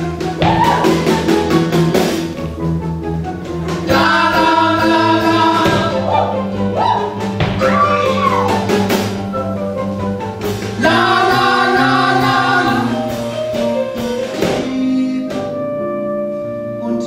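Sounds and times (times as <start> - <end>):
live band playing show tune: 0.0 - 17.0
people singing: 3.8 - 6.9, 10.8 - 13.4.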